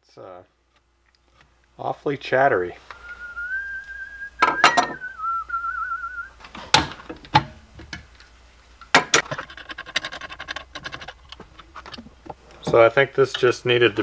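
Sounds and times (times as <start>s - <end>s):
person whistling: 2.9s - 6.4s
knocks and clatter of clamps: 8.9s - 12.8s.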